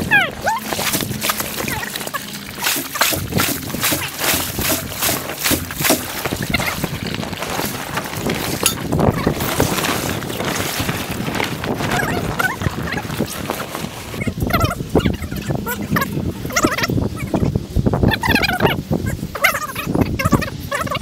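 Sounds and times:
broom scrubbing vinyl liner: 0.0 - 16.8
rustling and scraping: 0.0 - 17.1.

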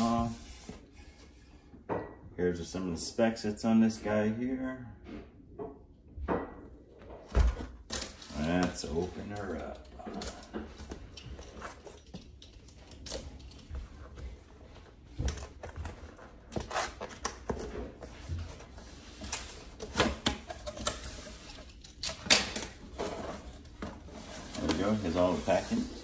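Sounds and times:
scrapes rustles and knocks: 13.3 - 26.0.

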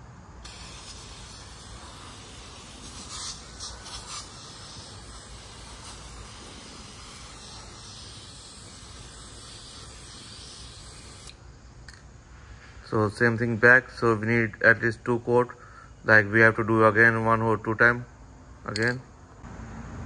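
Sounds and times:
aerosol can spraying: 0.4 - 11.4.

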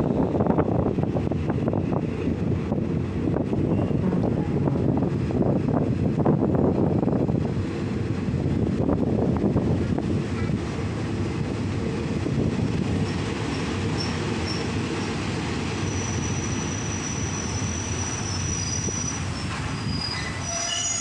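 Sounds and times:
train rumbling on rails: 0.0 - 21.0
wheel and brake squeals: 3.6 - 4.2, 15.8 - 21.0.

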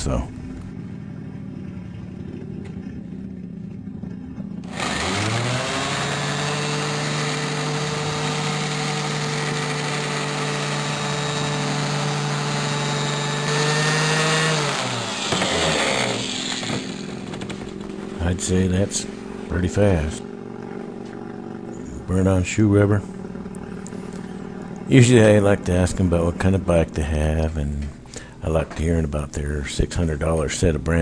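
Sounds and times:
electric sander whining: 4.6 - 26.9.

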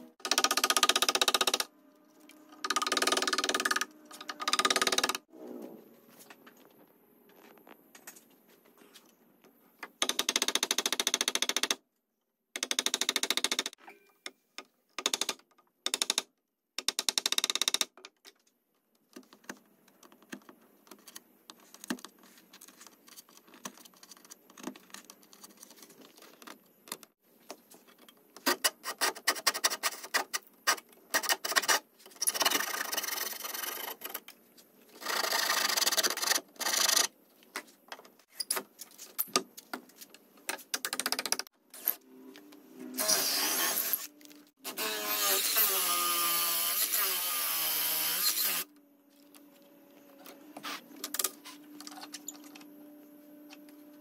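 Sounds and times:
saw strokes: 42.9 - 44.1
cutting on wood: 42.9 - 48.7.

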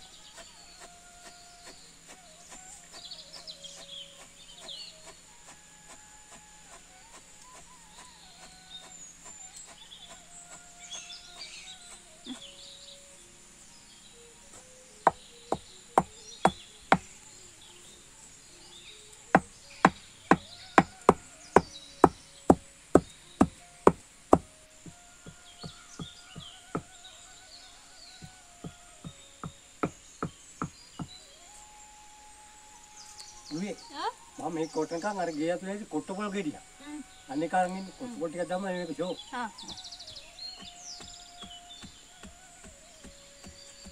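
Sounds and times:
faint bird chirps: 0.0 - 43.9
wooden pestle pounding in mortar: 19.4 - 26.9, 40.5 - 43.9.

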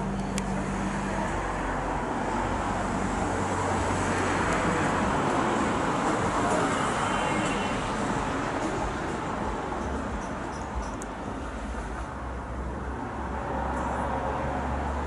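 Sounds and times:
rushing traffic: 0.0 - 15.0.

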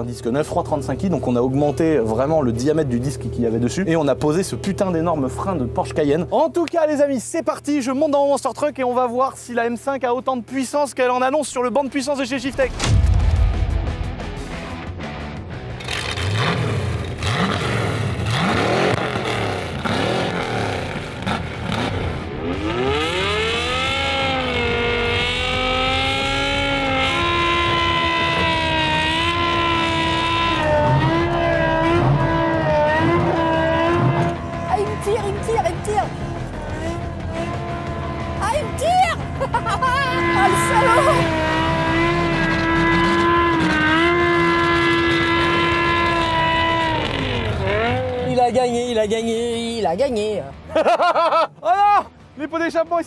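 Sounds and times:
car engine revving hard: 15.7 - 48.4.

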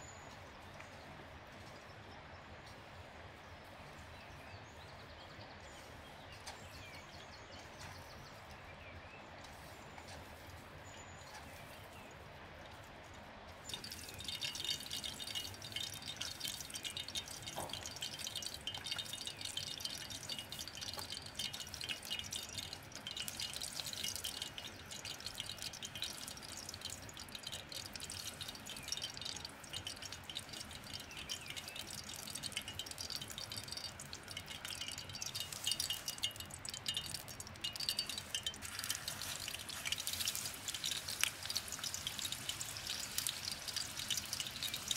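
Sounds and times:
hot oil crackling and spitting: 13.6 - 44.9
meat sizzling in oil: 13.7 - 44.9.

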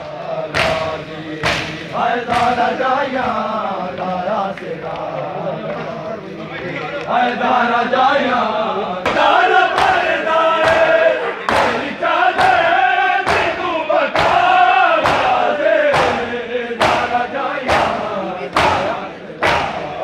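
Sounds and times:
crowd of men chanting: 0.0 - 20.0
chest beating slaps: 0.5 - 3.4, 9.0 - 20.0.

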